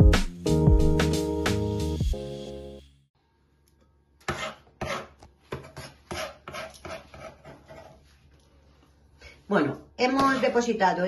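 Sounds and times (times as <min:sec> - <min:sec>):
knife chopping on wooden board: 0:04.2 - 0:08.0.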